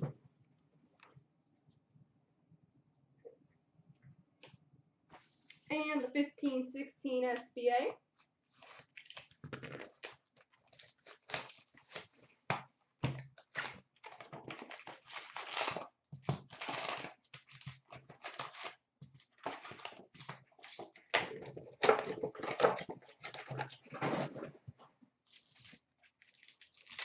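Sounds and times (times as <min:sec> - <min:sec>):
wrapper crinkling: 0:08.5 - 0:12.3, 0:13.4 - 0:21.1, 0:25.3 - 0:27.0.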